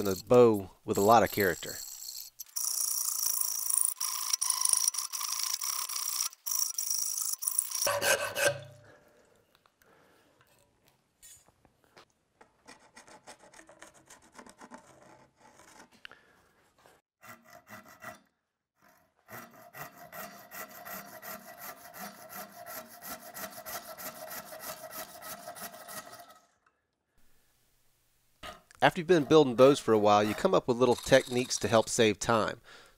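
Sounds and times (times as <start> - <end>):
hand saw cutting wood: 0.0 - 8.8, 17.2 - 26.6, 28.9 - 32.2.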